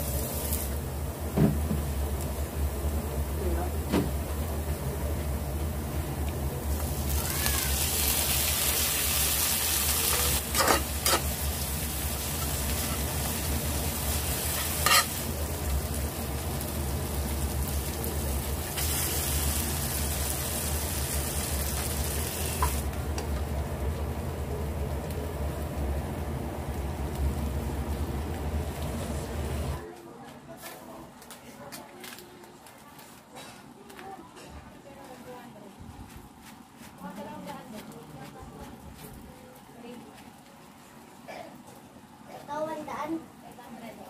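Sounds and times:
food sizzling in a frying pan: 0.0 - 3.4, 4.0 - 29.8.

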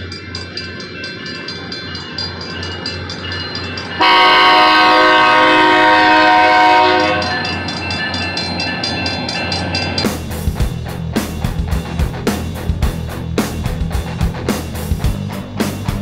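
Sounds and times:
crossing signal bell dinging: 0.0 - 10.5
locomotive air horn blast: 4.0 - 7.5.

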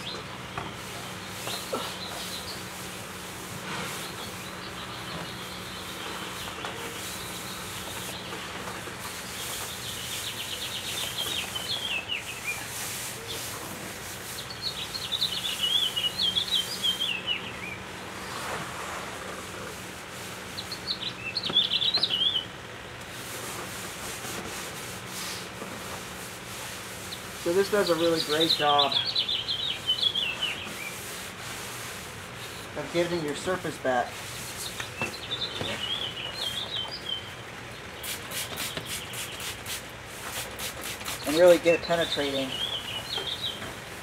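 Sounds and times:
birds chirping: 0.0 - 44.0
cloth wiping wooden tabletop: 11.8 - 14.5.

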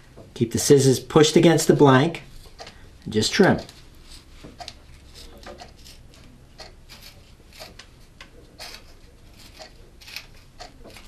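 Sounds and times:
scissors snipping tape: 8.6 - 11.0.

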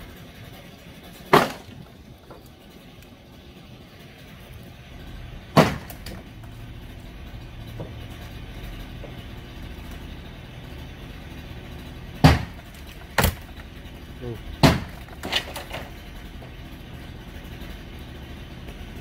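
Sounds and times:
steady low hum: 0.0 - 19.0
structure crashing down: 0.4 - 2.5, 5.2 - 10.1, 11.1 - 13.8, 14.4 - 16.8.

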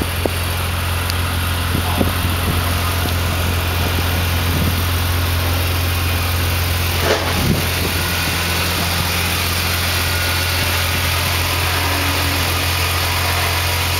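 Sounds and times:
engine idling: 0.0 - 13.9
brief bump: 7.0 - 7.8.

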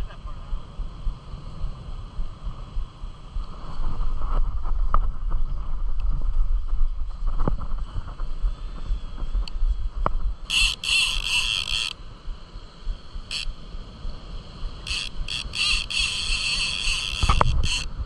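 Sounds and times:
wind rumble on microphone: 0.0 - 18.0
fishing reel ratcheting: 10.5 - 12.0, 13.3 - 13.5, 14.8 - 18.0.

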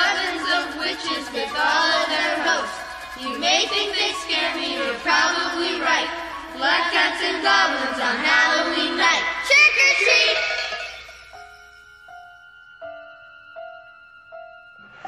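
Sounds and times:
high voices singing: 0.0 - 11.1.

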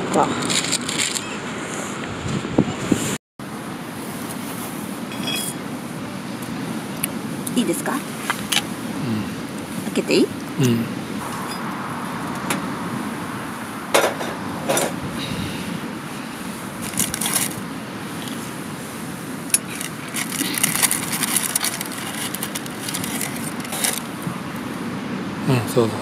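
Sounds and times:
bread crust crackling and rustling: 16.7 - 18.6, 19.3 - 24.4.

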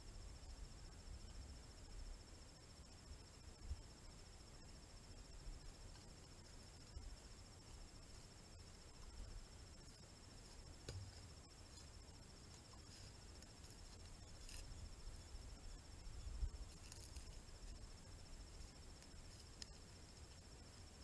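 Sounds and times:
high-pitched insect trill: 0.0 - 21.0
faint ticks: 5.8 - 7.0, 8.8 - 15.4, 16.2 - 20.6.

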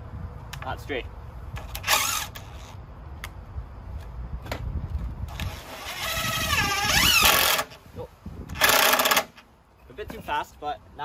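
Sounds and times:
impact driver driving screw into wood: 5.3 - 7.8, 8.5 - 9.4.

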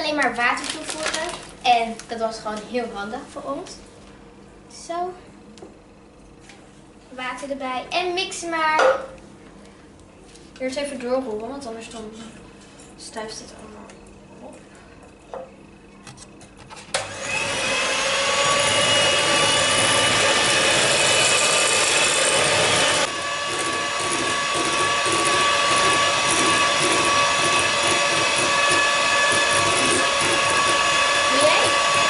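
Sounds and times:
electric hand mixer whirring: 16.9 - 32.0.

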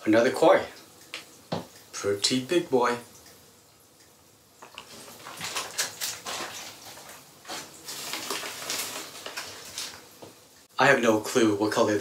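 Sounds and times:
plastic bags rustling: 4.8 - 10.4.

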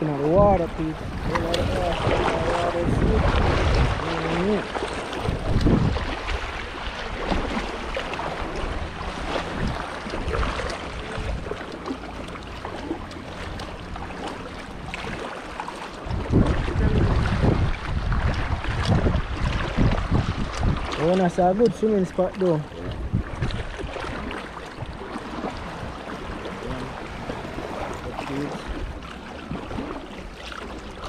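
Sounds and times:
wind buffeting microphone: 0.0 - 11.9, 12.6 - 31.0
water sloshing and splashing: 0.0 - 31.0.

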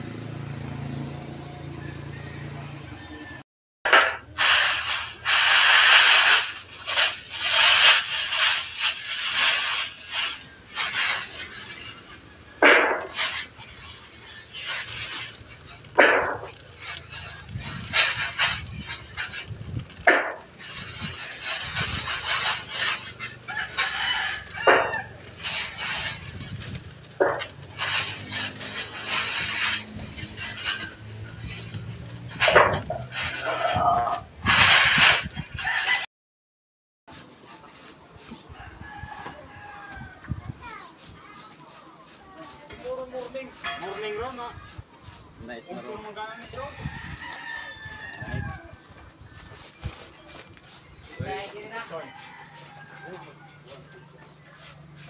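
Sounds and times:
paint spraying in hissing bursts: 0.8 - 3.2, 4.3 - 33.7.

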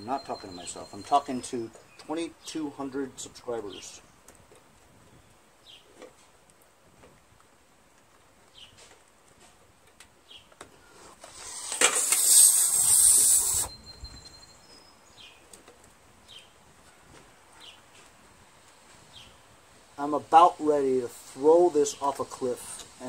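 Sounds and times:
loud hiss: 11.2 - 13.8.

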